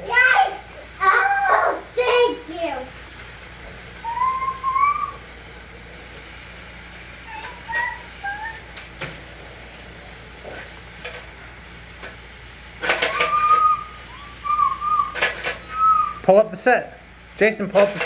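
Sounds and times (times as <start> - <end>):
whistle-like tones: 4.0 - 5.2, 7.3 - 8.7, 12.9 - 16.3.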